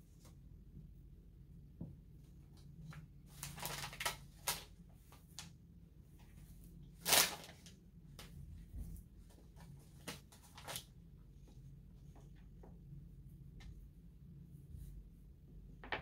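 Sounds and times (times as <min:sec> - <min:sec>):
plastic bag crinkling: 0:03.3 - 0:04.7, 0:07.0 - 0:07.7.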